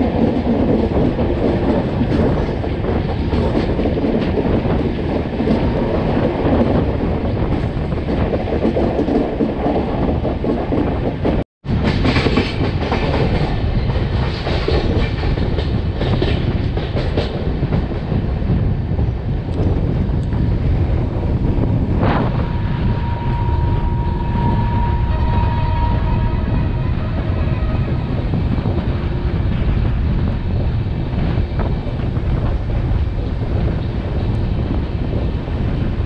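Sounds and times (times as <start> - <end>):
train coaches rumbling: 0.0 - 36.0.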